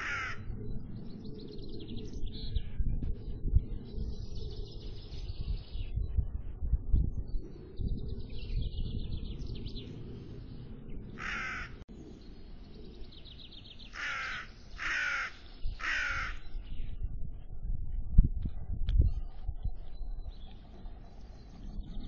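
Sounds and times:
crow cawing: 0:00.0 - 0:00.4, 0:11.2 - 0:11.8, 0:13.9 - 0:16.4
low rumble: 0:00.0 - 0:13.9
small birds twittering: 0:00.0 - 0:17.2, 0:18.6 - 0:22.0.

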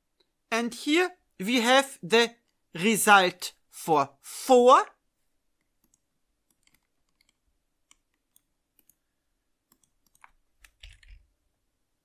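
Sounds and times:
mouse and keyboard clicks: 0:05.6 - 0:09.0, 0:09.7 - 0:11.3.

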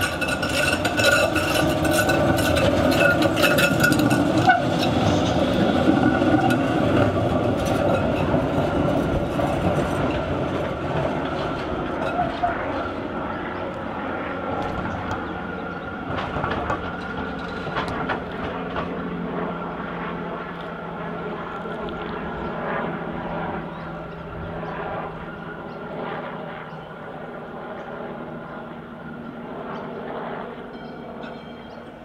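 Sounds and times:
wheels clicking on rails: 0:00.0 - 0:13.8, 0:14.5 - 0:19.1
tram hum and whine: 0:00.0 - 0:32.0.

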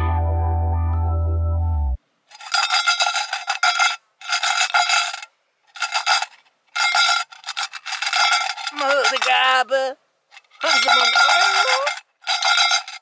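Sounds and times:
coins rattling in a tin: 0:02.3 - 0:09.5, 0:10.3 - 0:13.0.

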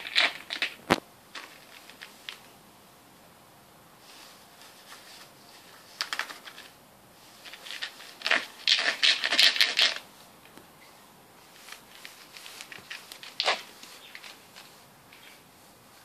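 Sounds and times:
ferret scratching inside a sandal: 0:00.0 - 0:00.8, 0:07.3 - 0:10.1, 0:11.4 - 0:15.5.

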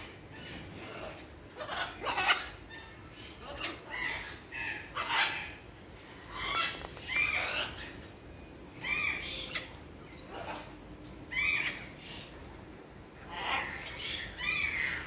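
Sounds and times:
parrots squawking: 0:00.3 - 0:05.6, 0:06.3 - 0:08.1, 0:08.8 - 0:10.7, 0:11.3 - 0:12.4, 0:13.2 - 0:15.0.

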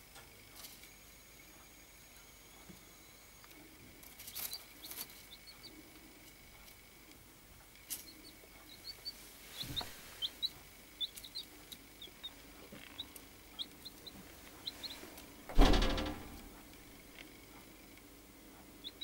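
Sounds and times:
baby chicks peeping: 0:00.5 - 0:19.0
loud thump: 0:15.5 - 0:16.5.

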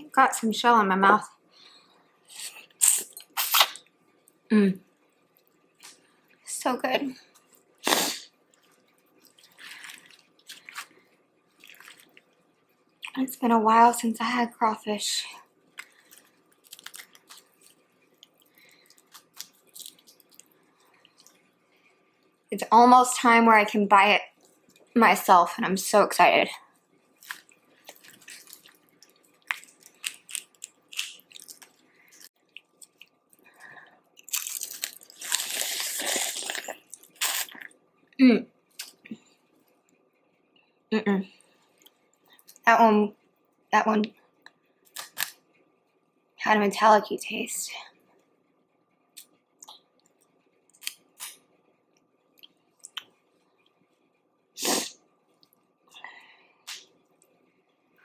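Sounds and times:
chewing: 0:07.3 - 0:13.2, 0:15.6 - 0:21.5, 0:27.1 - 0:37.8
shells snapping and crunching: 0:15.8 - 0:20.5, 0:27.2 - 0:33.1, 0:34.2 - 0:37.5, 0:44.9 - 0:45.4.

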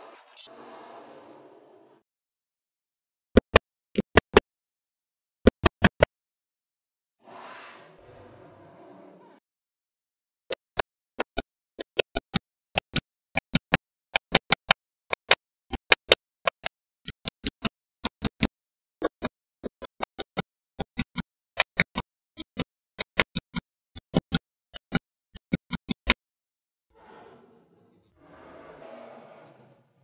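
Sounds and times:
magnetic balls clicking: 0:10.6 - 0:18.5, 0:19.1 - 0:26.2.

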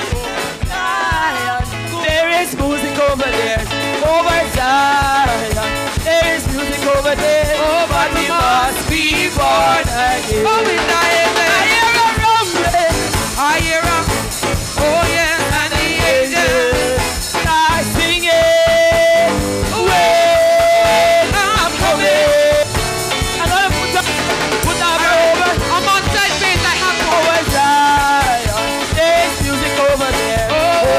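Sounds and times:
live band playing church music: 0:00.0 - 0:30.9.

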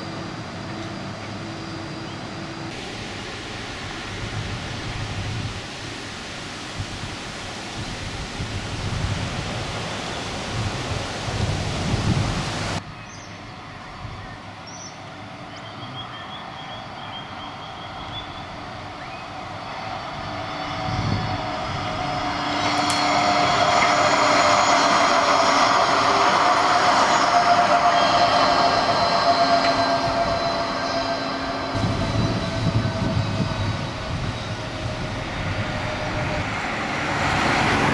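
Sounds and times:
electric tram passing: 0:00.0 - 0:37.9
wind noise on microphone: 0:04.0 - 0:13.0, 0:20.1 - 0:24.8, 0:31.7 - 0:37.9
high whining tones: 0:16.4 - 0:37.9.

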